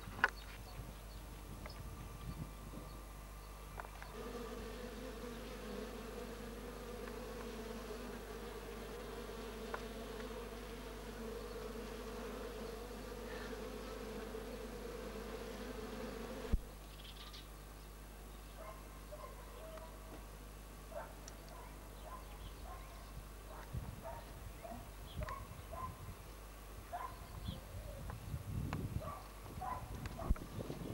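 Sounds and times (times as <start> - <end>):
honeybees buzzing: 1.1 - 16.7.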